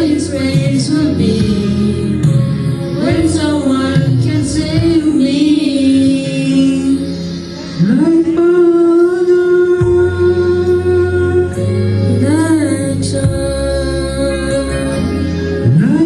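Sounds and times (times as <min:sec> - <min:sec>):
music: 0:00.0 - 0:16.0
boy singing: 0:03.0 - 0:07.1, 0:07.8 - 0:11.6
man singing: 0:07.8 - 0:14.8.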